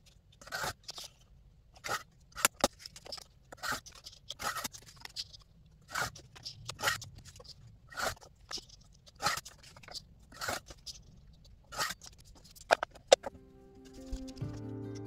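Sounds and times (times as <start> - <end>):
paper trimmer blade scraping: 0.4 - 1.1, 3.6 - 4.9, 10.3 - 10.8, 11.7 - 12.2
card shifting on plastic: 11.7 - 15.0.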